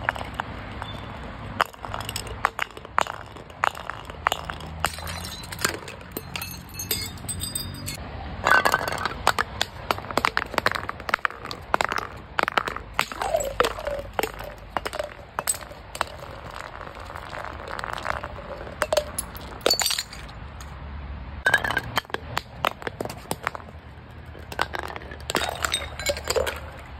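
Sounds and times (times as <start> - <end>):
glass bottles smashing on concrete: 0.0 - 20.3, 21.5 - 23.6, 24.4 - 26.8
glass shards tinkling: 3.7 - 9.1, 18.8 - 20.3.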